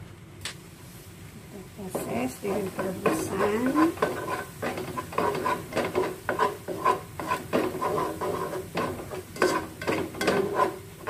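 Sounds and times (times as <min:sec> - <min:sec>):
spatula scraping in a pan: 0:01.8 - 0:11.0.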